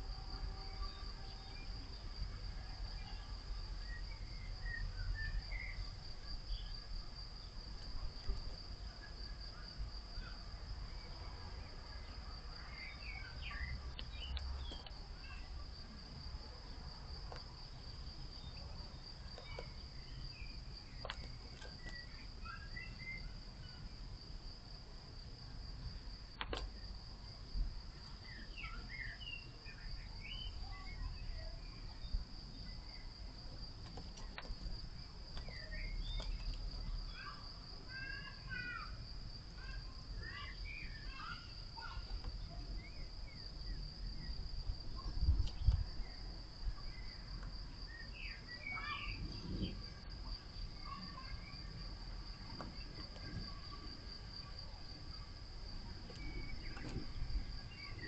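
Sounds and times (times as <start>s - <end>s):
songbird chirps: 0.0s - 58.0s.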